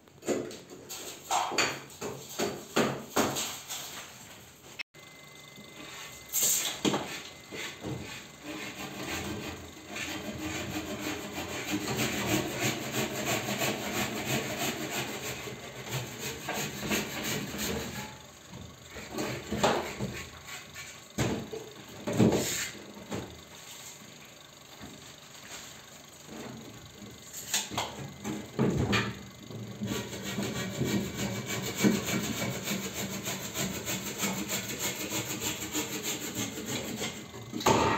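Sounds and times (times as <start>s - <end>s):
hand saw cutting: 7.2s - 18.2s, 29.8s - 37.3s.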